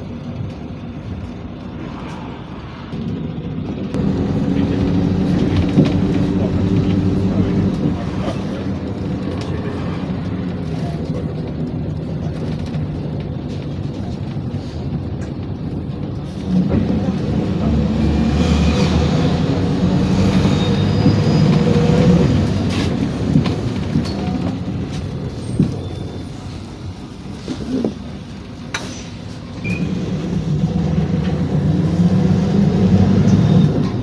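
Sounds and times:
bus engine drone: 0.0s - 34.0s
road and body rattle: 0.0s - 34.0s
sharp rattles and clicks: 4.8s - 16.8s.

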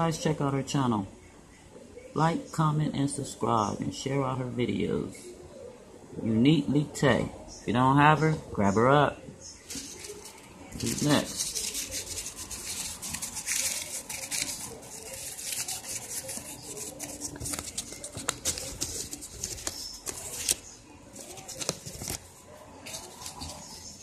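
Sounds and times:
paper rustling and crinkling: 9.7s - 24.0s.

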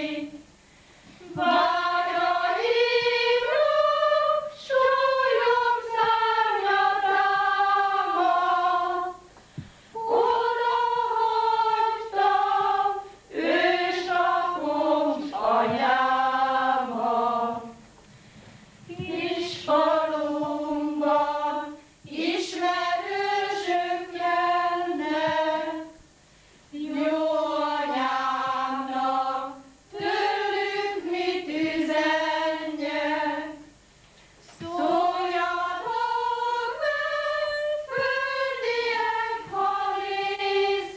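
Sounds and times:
women singing unaccompanied: 0.0s - 0.5s, 1.2s - 17.9s, 18.9s - 33.8s, 34.4s - 40.9s.

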